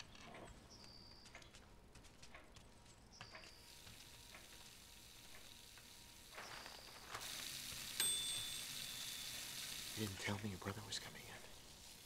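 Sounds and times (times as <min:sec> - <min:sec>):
food sizzling in a frying pan: 0:03.7 - 0:12.0
thin high tone: 0:06.5 - 0:10.8.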